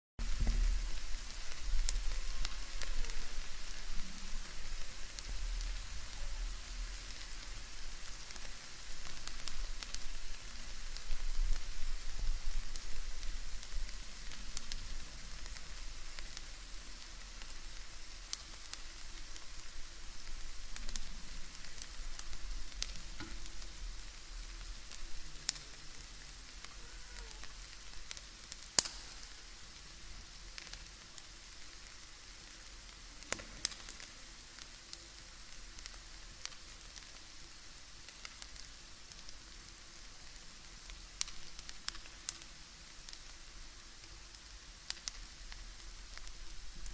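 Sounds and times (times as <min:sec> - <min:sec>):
bacon sizzling: 0:00.2 - 0:46.9
fat popping and crackling: 0:25.4 - 0:29.4.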